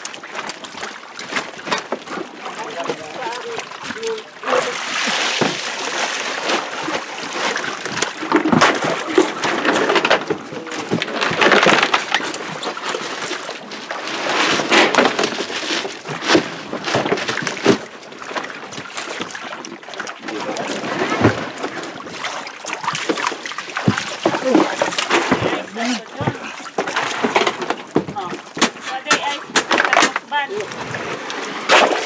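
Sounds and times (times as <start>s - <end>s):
water splashing on floor: 0.0s - 32.0s.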